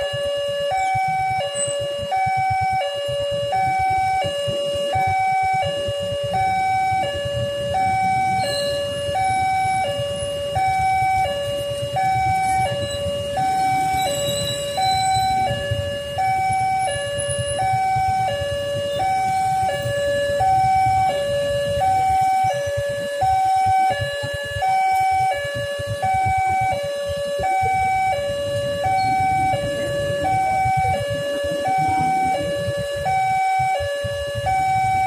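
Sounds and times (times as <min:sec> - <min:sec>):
two-tone crossing alarm: 0:00.0 - 0:35.0
low rumble: 0:25.5 - 0:35.0.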